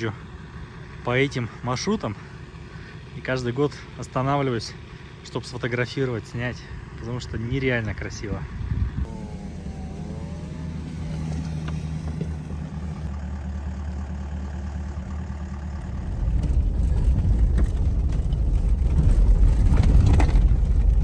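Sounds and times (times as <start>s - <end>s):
suv engine running: 0.0s - 21.0s.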